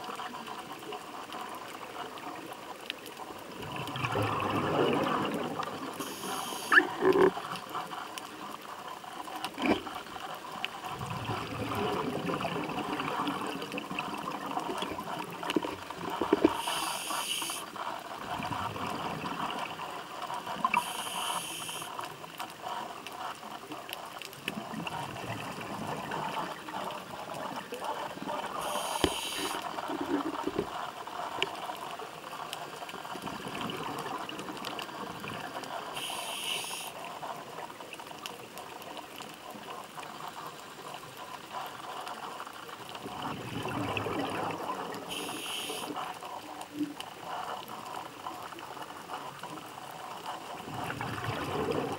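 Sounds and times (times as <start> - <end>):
bubbles gurgling underwater: 3.5 - 6.1, 10.9 - 16.6, 43.0 - 45.2, 50.5 - 51.9
diver breathing through regulator: 16.4 - 17.7, 20.7 - 21.9, 28.6 - 29.7, 36.0 - 37.0, 45.1 - 46.1.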